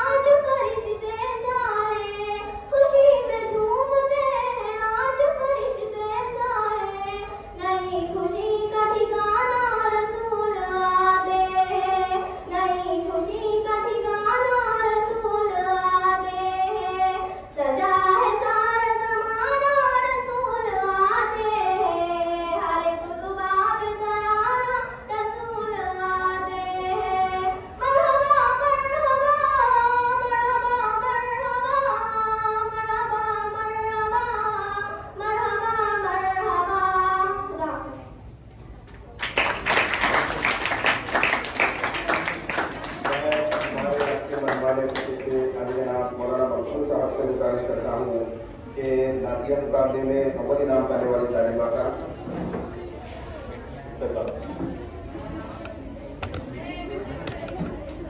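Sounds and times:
girl singing unaccompanied: 0.0s - 38.2s.

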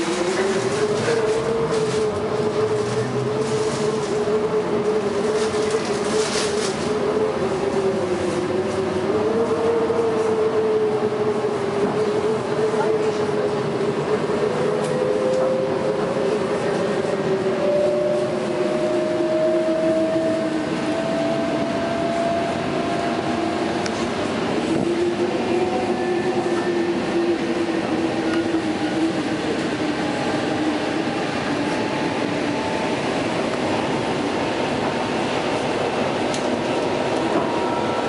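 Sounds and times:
train wheels rumbling on track: 0.0s - 38.0s.

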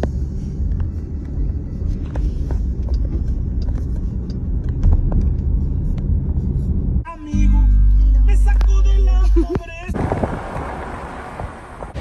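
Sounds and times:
light ticks: 0.0s - 6.1s
engine and tyre noise in car: 0.0s - 12.0s.

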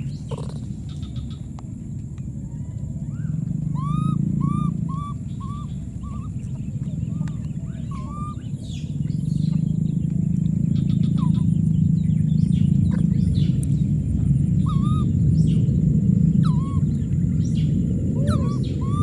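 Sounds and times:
low rumble: 0.0s - 19.0s.

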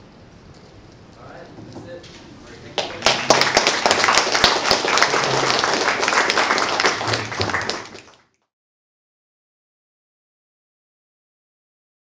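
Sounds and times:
audience applauding: 2.5s - 8.4s.

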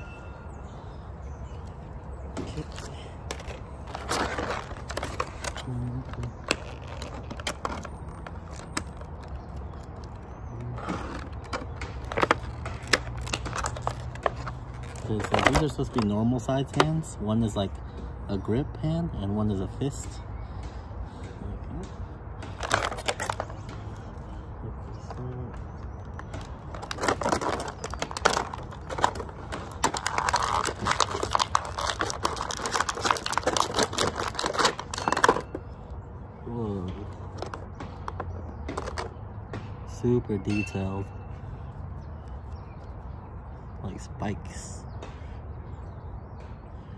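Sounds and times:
plastic bag rustling: 2.5s - 10.2s, 26.7s - 35.6s
plastic packaging crinkling: 2.6s - 10.2s, 10.8s - 16.1s, 22.6s - 23.6s, 26.4s - 35.6s.

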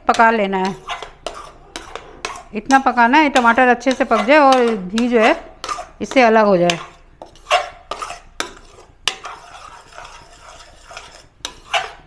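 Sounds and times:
spoon scraping a pan: 0.0s - 12.0s.

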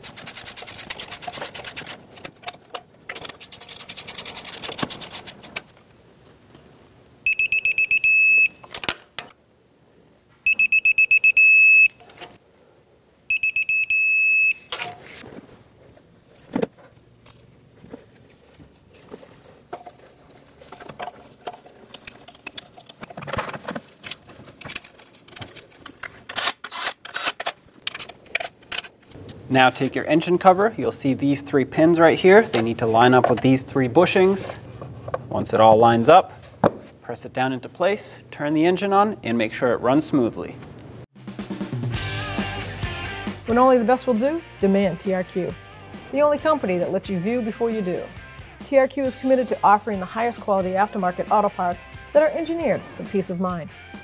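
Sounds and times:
torque wrench beeping: 7.3s - 8.6s, 10.5s - 12.0s, 13.3s - 14.8s.

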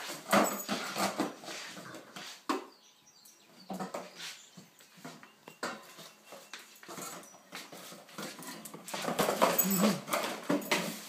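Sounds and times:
cardboard box scraping on tiled floor: 0.0s - 2.5s.

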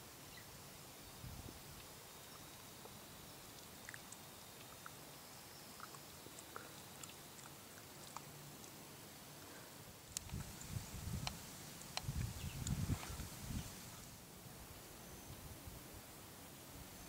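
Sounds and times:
soft steady hiss: 0.0s - 17.0s
faint ticks: 5.8s - 8.8s, 9.4s - 14.1s.

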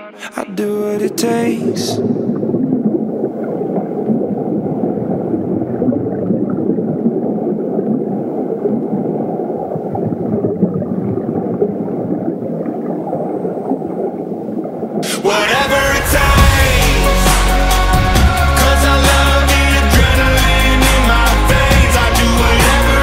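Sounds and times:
wind rushing: 15.2s - 23.0s
drone propeller noise: 15.4s - 23.0s.

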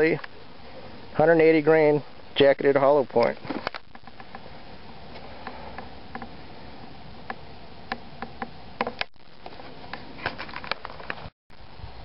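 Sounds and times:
steady background hiss: 0.0s - 12.0s
faint sharp clicks and ticks: 3.1s - 4.4s.

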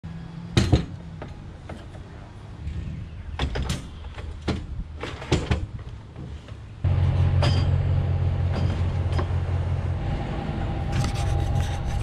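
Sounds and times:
steel frames knocking and rattling: 3.4s - 6.6s
metal clank: 7.1s - 9.4s.

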